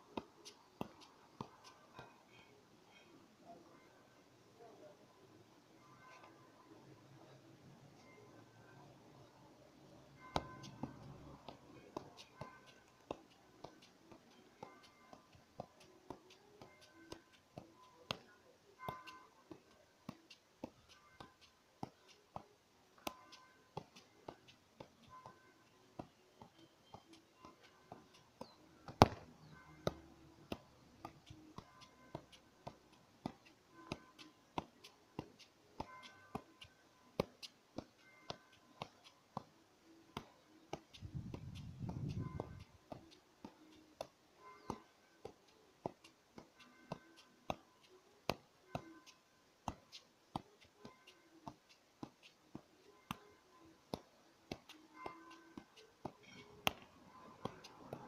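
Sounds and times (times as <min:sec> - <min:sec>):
soccer ball taps: 0:00.1 - 0:01.8, 0:10.3 - 0:25.4, 0:26.0 - 0:39.5, 0:40.2 - 0:47.7, 0:48.3 - 0:48.9, 0:49.6 - 0:53.2, 0:53.9 - 0:58.0.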